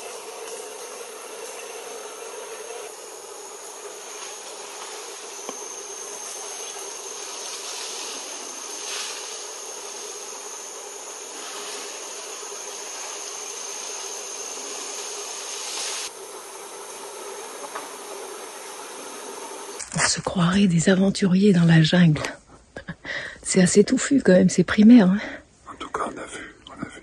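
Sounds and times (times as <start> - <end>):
high-pitched insect drone: 0.0 - 19.8
light hiss: 0.0 - 20.1.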